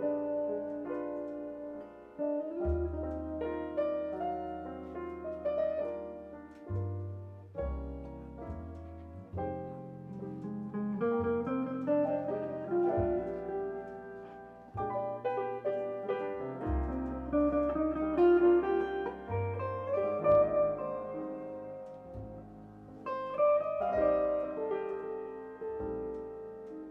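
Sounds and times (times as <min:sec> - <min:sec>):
sustained bass notes: 0:00.0 - 0:26.8
electric guitar melody: 0:00.0 - 0:26.9.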